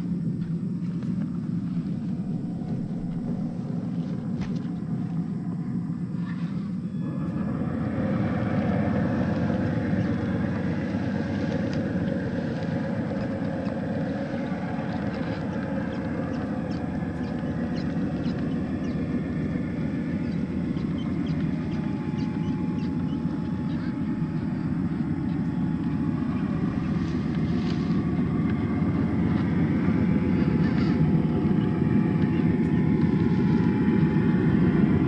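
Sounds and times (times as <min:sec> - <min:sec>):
light crackles of dry grass: 0:08.3 - 0:22.0, 0:25.3 - 0:31.0.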